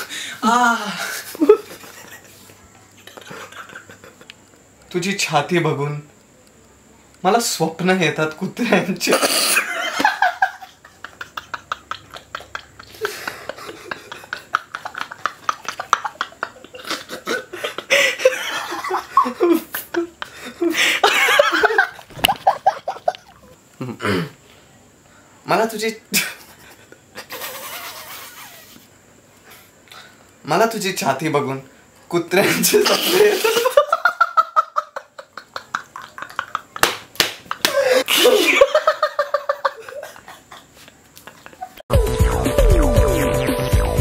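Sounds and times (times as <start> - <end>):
man laughing hard: 0.9 - 2.3, 3.1 - 4.3, 9.4 - 23.4, 32.4 - 36.9, 37.5 - 41.8
sharp smacks: 36.8 - 37.8.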